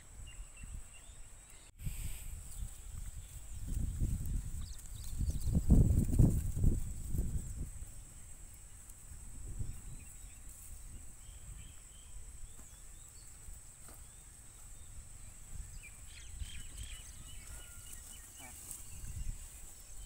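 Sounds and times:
faint bird chirps: 9.6s - 20.0s.

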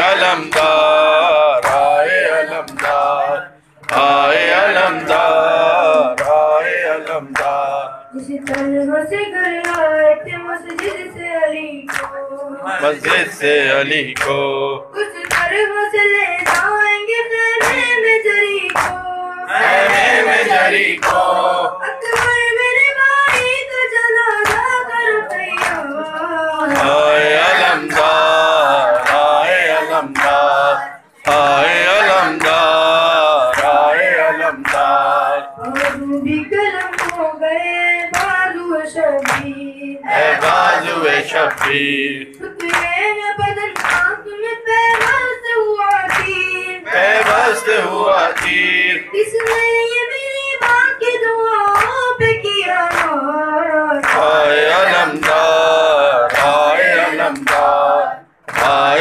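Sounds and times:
rhythmic chest-beating slaps: 0.0s - 14.6s, 15.2s - 59.0s
boy chanting a lament: 0.0s - 58.2s
boys singing in chorus: 0.0s - 59.0s.

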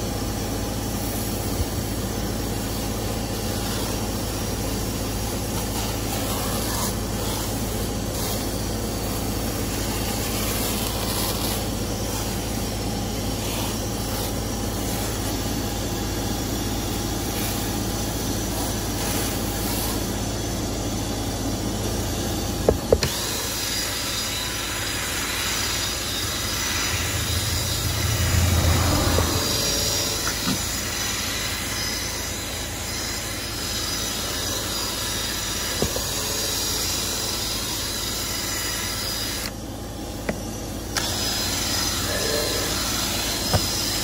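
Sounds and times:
mechanical hum with hiss: 0.0s - 44.0s
cordless drill buzzing: 22.6s - 28.2s, 29.1s - 39.6s, 40.2s - 44.0s.

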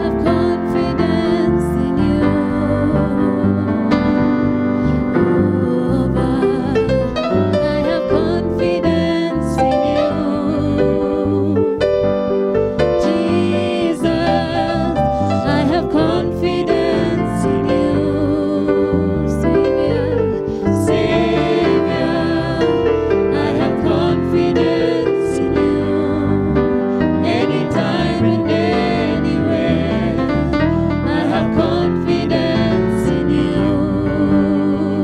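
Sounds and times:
woman singing: 0.0s - 3.9s, 5.4s - 11.8s, 13.0s - 26.5s, 31.1s - 35.0s
keyboard accompaniment: 0.0s - 35.0s.

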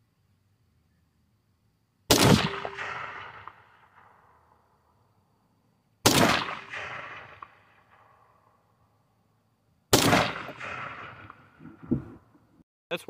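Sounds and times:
rifle shots: 2.1s - 4.4s, 6.0s - 8.4s, 9.9s - 11.6s.

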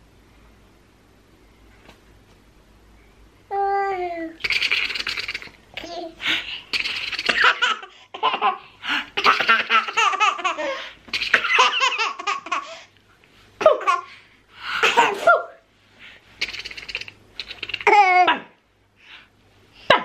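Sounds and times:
toddler girl laughing: 6.8s - 12.8s.

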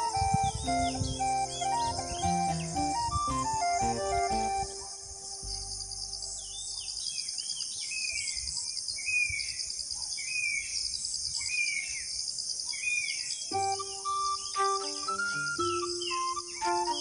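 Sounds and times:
bird call: 0.0s - 7.2s, 13.5s - 17.0s.

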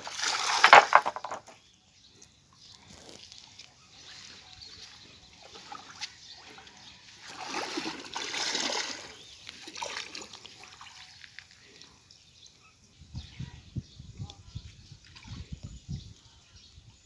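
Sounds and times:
water splashing and trickling: 0.0s - 1.5s, 3.3s - 12.3s, 14.8s - 16.2s.

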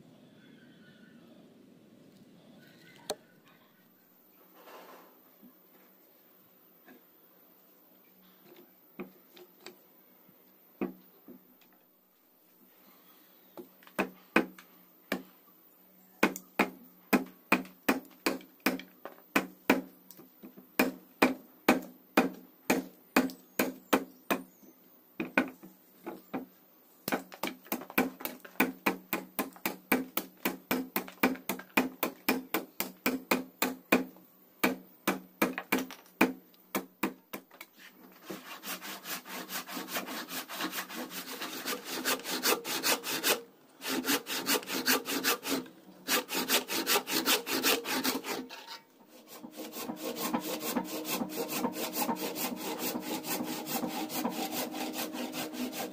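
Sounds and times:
machete chopping wood: 16.2s - 19.9s, 20.8s - 24.4s, 27.1s - 37.5s
handsaw sawing wood: 38.2s - 55.9s.

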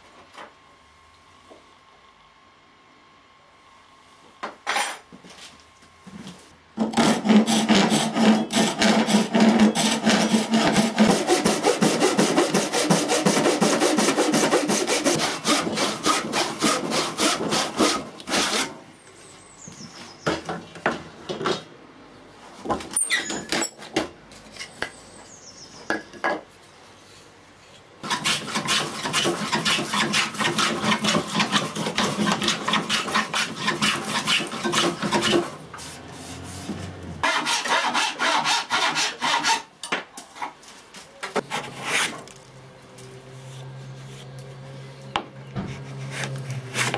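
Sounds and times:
hand saw cutting wood: 6.8s - 18.8s, 28.0s - 39.7s, 41.4s - 42.2s, 45.6s - 46.9s.

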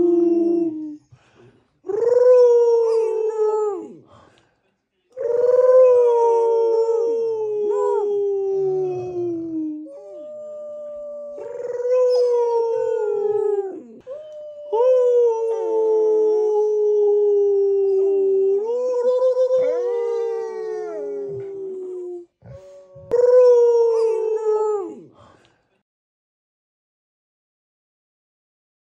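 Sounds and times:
people howling: 5.2s - 22.2s
dogs howling: 5.2s - 25.1s.

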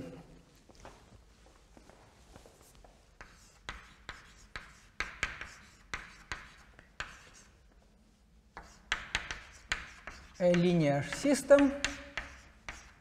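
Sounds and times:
chalk writing on blackboard: 3.0s - 7.8s, 8.5s - 13.0s.

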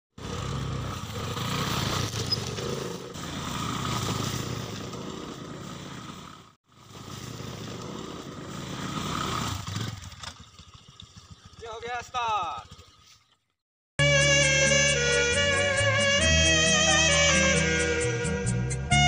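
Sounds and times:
motor scooter engine running: 0.2s - 13.2s.

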